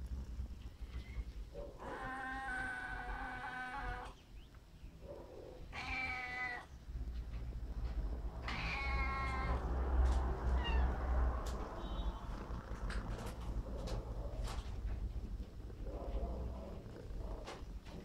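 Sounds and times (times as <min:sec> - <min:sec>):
cat meowing: 0:01.8 - 0:04.1, 0:05.7 - 0:06.7, 0:08.4 - 0:09.7, 0:10.4 - 0:11.1
low rumble: 0:06.8 - 0:18.0.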